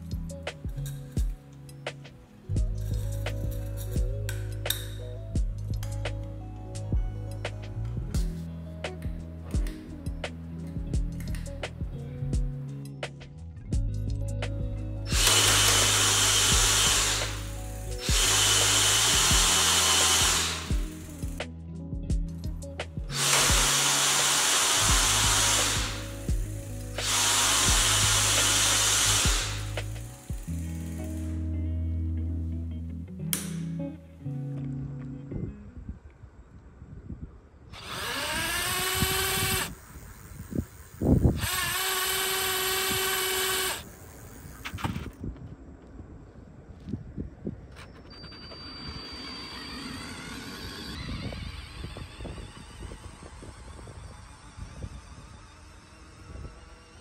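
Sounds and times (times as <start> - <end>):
background music: 0.0 - 35.7
cordless drill spinning: 15.1 - 21.4, 23.1 - 31.4, 37.8 - 45.2, 47.9 - 57.0.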